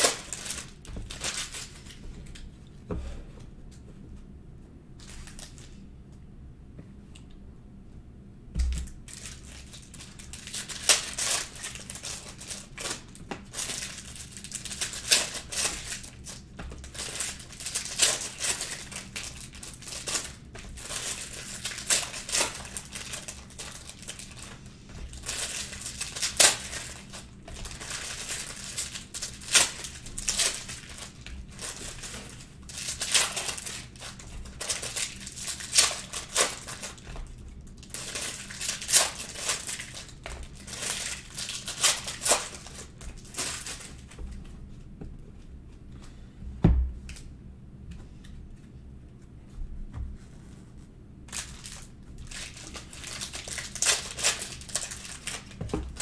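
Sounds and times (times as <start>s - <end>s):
foil packs tearing and crinkling: 0.0s - 2.4s, 5.0s - 5.7s, 8.8s - 44.2s, 51.3s - 56.0s.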